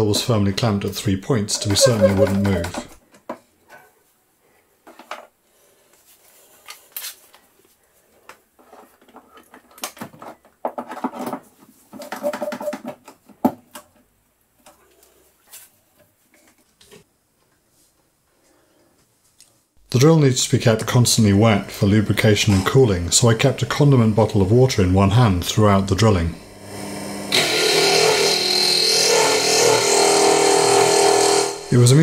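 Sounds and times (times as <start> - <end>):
clicks and knocks of plastic and metal: 8.6 - 14.8.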